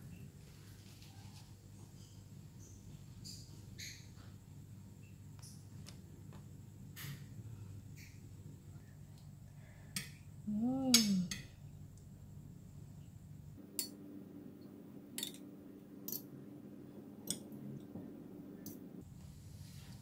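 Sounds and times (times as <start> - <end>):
person humming: 10.4 - 11.4.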